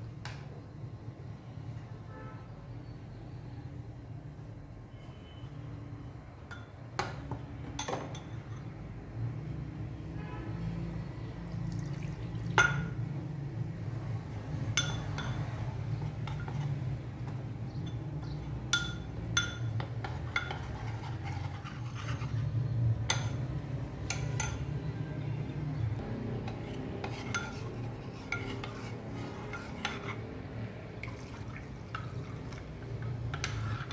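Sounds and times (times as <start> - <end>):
metal spoon clinking on bowl: 6.5 - 6.8, 7.8 - 8.7, 14.7 - 15.5, 17.8 - 20.7, 23.1 - 24.7
water pouring into bowl: 11.6 - 12.6, 31.0 - 32.8.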